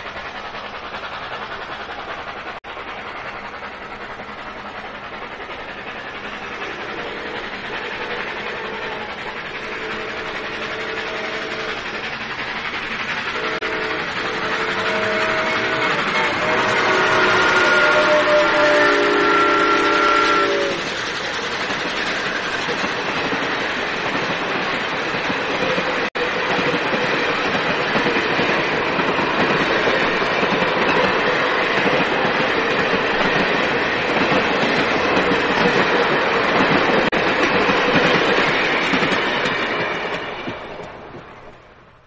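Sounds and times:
steam train exhaust rushing: 0.0 - 42.0
steam locomotive whistle: 5.4 - 22.8.

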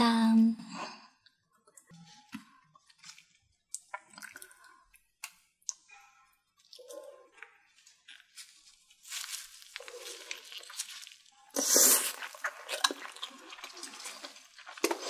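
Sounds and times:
wet sticky eating clicks: 3.7 - 4.5.

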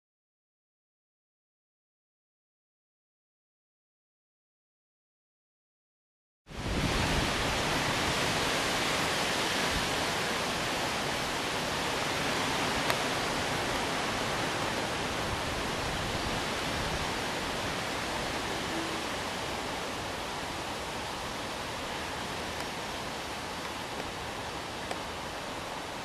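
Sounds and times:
steady rushing noise: 6.5 - 26.0
wind rumble on microphone: 6.5 - 26.0.

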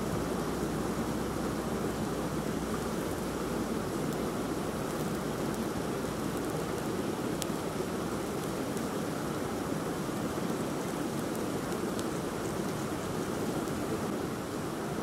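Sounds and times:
fire crackling: 2.4 - 9.5, 10.2 - 12.9.

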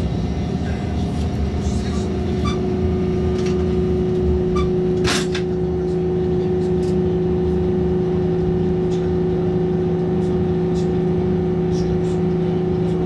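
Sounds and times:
train cabin rumble and hum: 0.0 - 13.0.

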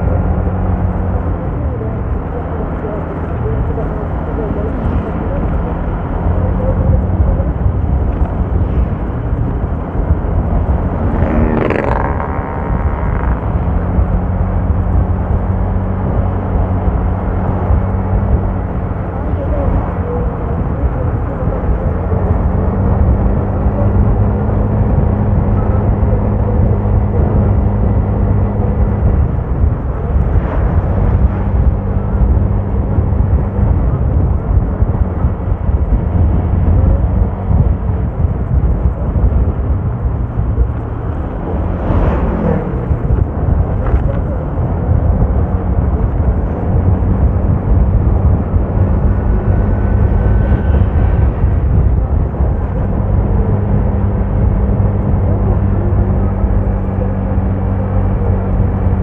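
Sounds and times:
road and wind rumble: 0.0 - 59.0
vehicle engine running: 0.0 - 59.0.

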